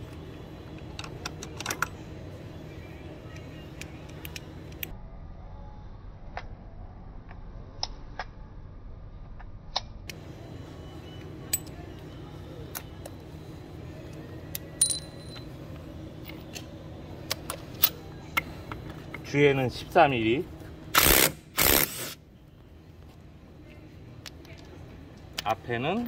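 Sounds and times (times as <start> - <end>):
low background hum: 0.0 - 26.0
metal parts clicking and clinking: 0.8 - 2.0, 14.8 - 15.5
ringing metal clink: 14.8 - 15.5.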